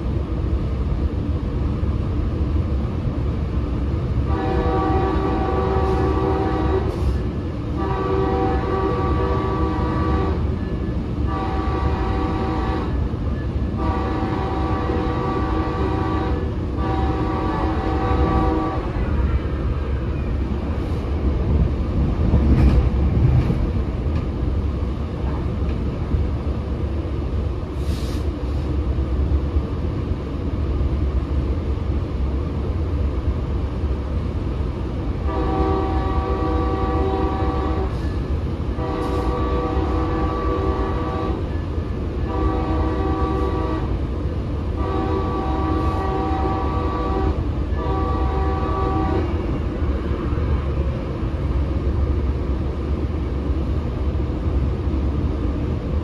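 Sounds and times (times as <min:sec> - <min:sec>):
train rumble: 0:00.0 - 0:56.0
locomotive horn chord: 0:04.2 - 0:10.6, 0:11.2 - 0:13.0, 0:13.8 - 0:19.6, 0:35.2 - 0:38.1, 0:38.7 - 0:41.6, 0:42.2 - 0:44.0, 0:44.7 - 0:49.4.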